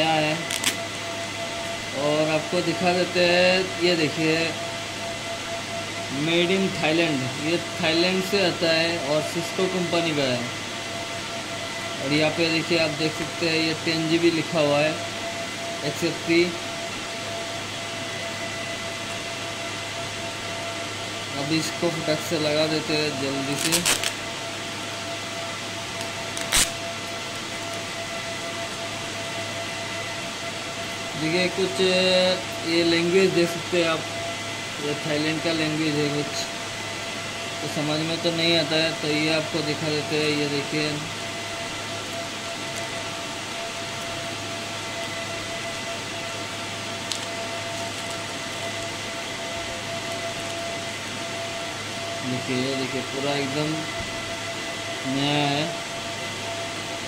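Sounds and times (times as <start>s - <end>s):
machine hum: 0.0s - 57.0s
plastic packaging crackle: 0.5s - 0.8s, 23.5s - 24.2s, 26.0s - 27.8s, 47.1s - 48.9s.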